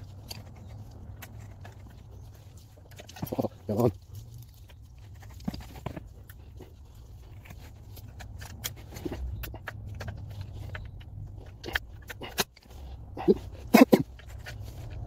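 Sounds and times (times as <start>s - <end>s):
low steady hum: 0.0s - 15.0s
screwdriver clicking and scraping metal: 7.3s - 15.0s.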